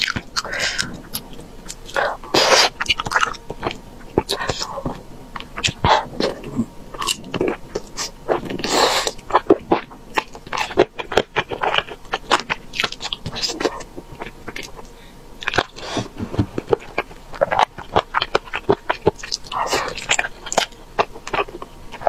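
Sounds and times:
person chewing food: 0.0 - 22.0.

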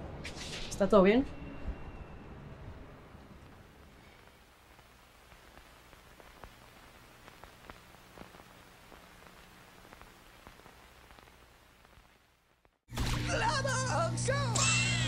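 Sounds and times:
faint steady hiss: 3.2 - 12.8.

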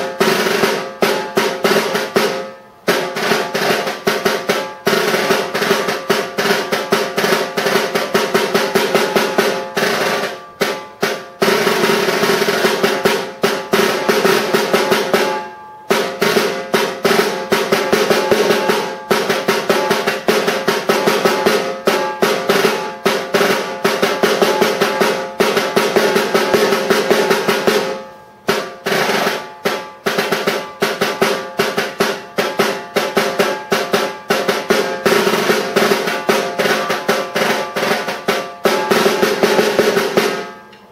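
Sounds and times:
snare drum solo: 0.0 - 40.9.

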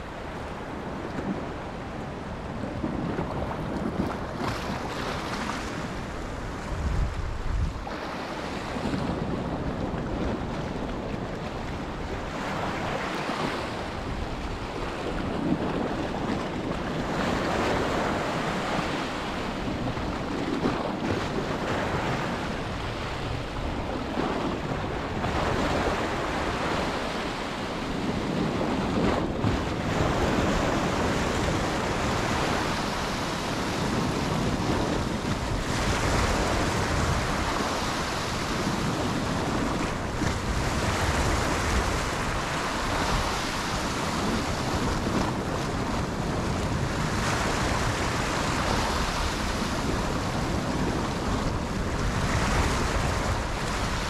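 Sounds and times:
sea waves washing: 0.0 - 54.0
wind blowing across microphone: 0.0 - 54.0.

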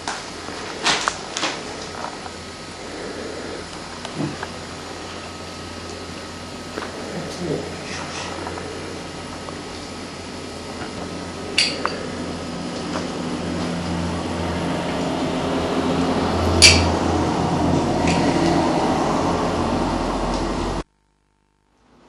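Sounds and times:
utensils rubbing and scraping: 6.7 - 18.9.

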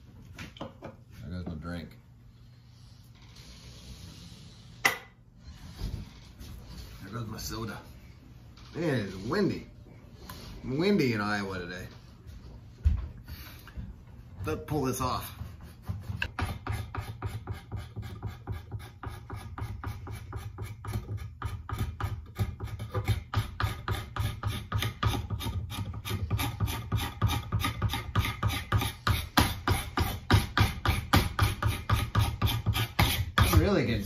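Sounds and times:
hand tool shaving wood: 16.2 - 34.0.

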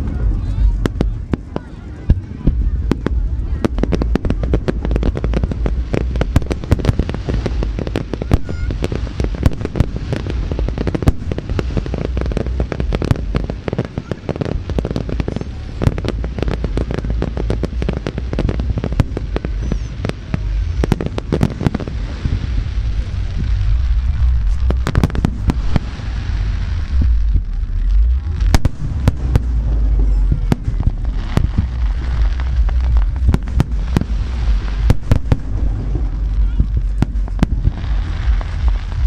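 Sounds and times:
firework bangs: 0.0 - 39.0
low rumble: 0.0 - 39.0.

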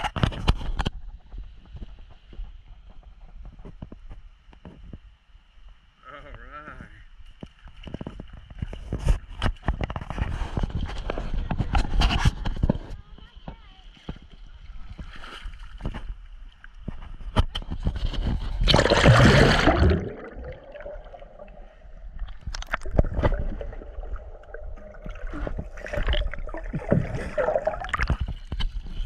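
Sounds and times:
creek water sloshing and gurgling: 13.8 - 29.0
loud water splash: 18.6 - 21.6.

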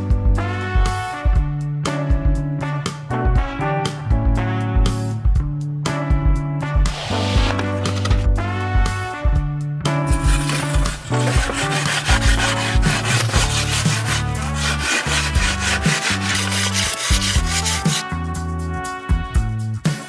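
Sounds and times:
background music with bass line: 0.0 - 20.0
metal tool scraping snow: 10.1 - 18.1.

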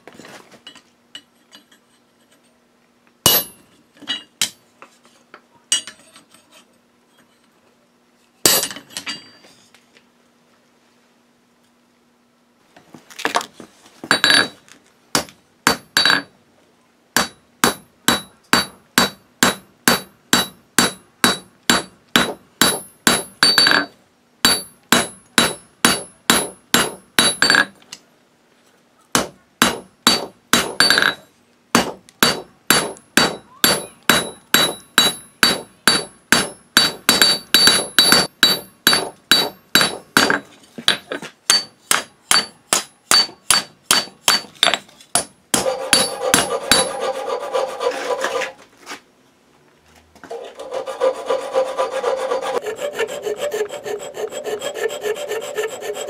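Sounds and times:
hammer striking steel on anvil: 3.3 - 4.6, 8.4 - 9.4, 15.2 - 16.3, 17.2 - 27.7, 29.1 - 31.2, 31.8 - 47.2.

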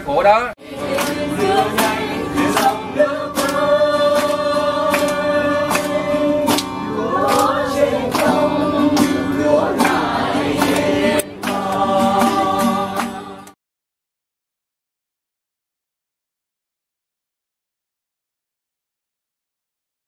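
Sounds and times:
music with singing over a beat: 0.9 - 13.6.

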